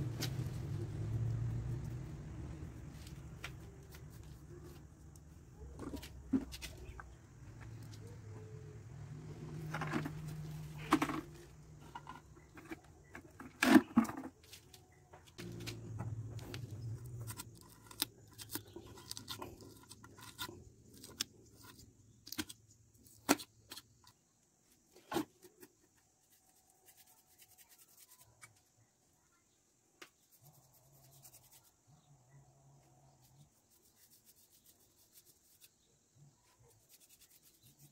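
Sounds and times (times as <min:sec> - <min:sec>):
cement pot knocks and scrapes: 0:09.4 - 0:14.4.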